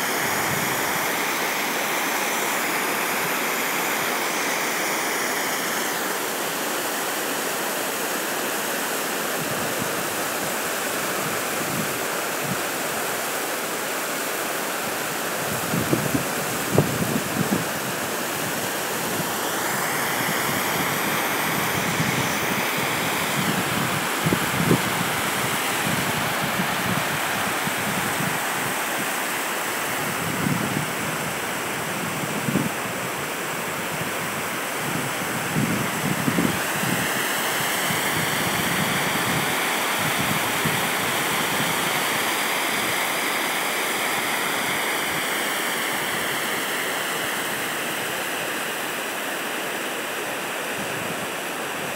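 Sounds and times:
waterfall rushing: 0:00.0 - 0:51.9
wind buffeting microphone: 0:15.4 - 0:19.4, 0:20.2 - 0:29.1, 0:33.8 - 0:37.2.

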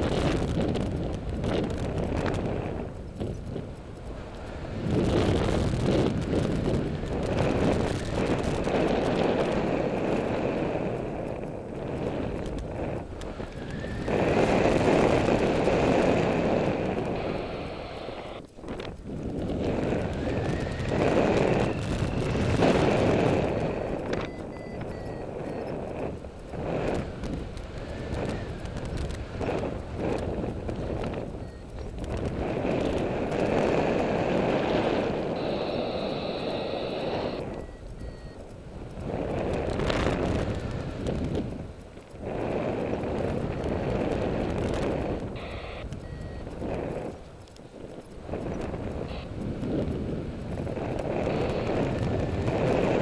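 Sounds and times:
wind rushing over microphone: 0:00.0 - 0:53.0
short electronic beep: 0:23.7 - 0:25.8, 0:35.4 - 0:38.4, 0:45.4 - 0:46.5.

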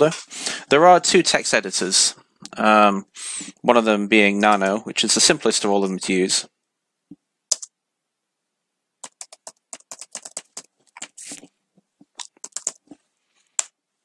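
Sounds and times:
computer keyboard typing: 0:07.5 - 0:07.8, 0:09.0 - 0:11.2, 0:12.2 - 0:13.0.

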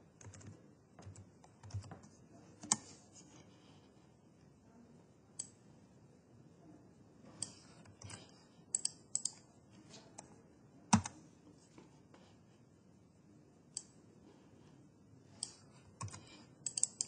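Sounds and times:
computer mouse clicks: 0:00.2 - 0:03.0, 0:05.4 - 0:05.6, 0:07.4 - 0:10.3, 0:10.9 - 0:11.2, 0:15.4 - 0:17.0.

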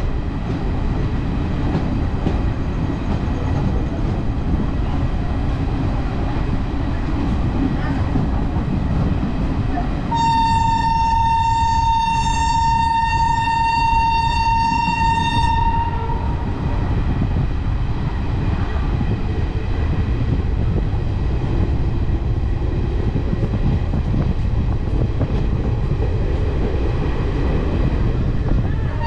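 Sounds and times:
moving train rumble: 0:00.0 - 0:29.0
high train horn: 0:10.1 - 0:16.5, 0:28.7 - 0:29.0.

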